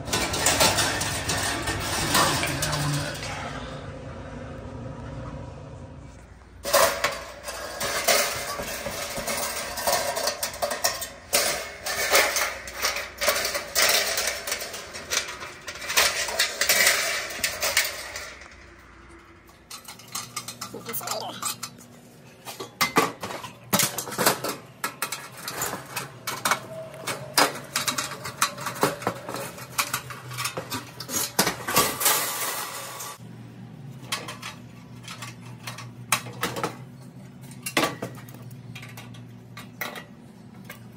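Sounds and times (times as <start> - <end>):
tools clinking on sheet metal: 0.0 - 3.4, 6.6 - 18.7, 19.7 - 33.2.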